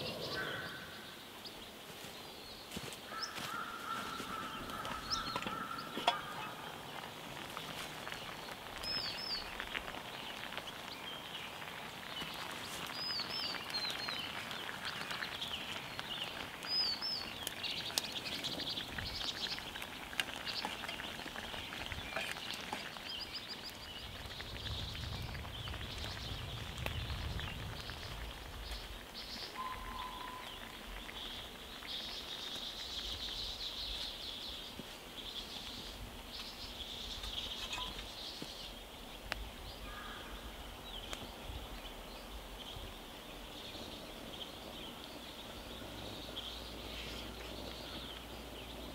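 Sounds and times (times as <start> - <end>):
bird chirping: 0.0 - 3.4, 8.1 - 48.9
sauce bubbling and popping: 4.7 - 34.0.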